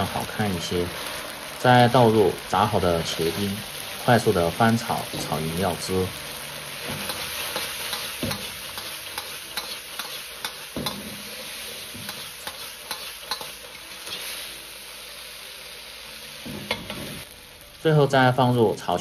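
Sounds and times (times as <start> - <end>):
eggplant sizzling in a wok: 0.0 - 19.0
steel ladle scraping and knocking wok: 6.8 - 14.2.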